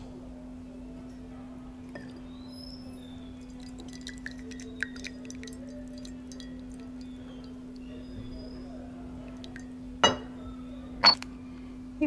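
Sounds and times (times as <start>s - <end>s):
tea dripping into a mug: 1.9s - 9.8s.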